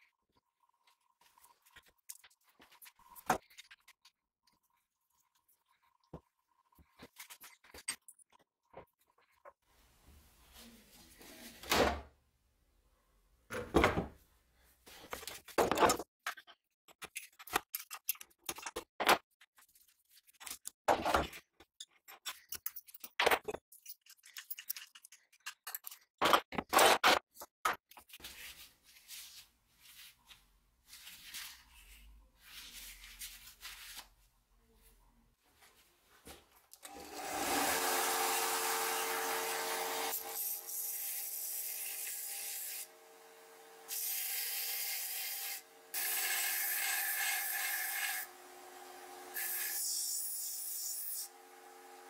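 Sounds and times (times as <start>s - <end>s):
metal clamps clicking and scraping: 21.6s - 27.2s.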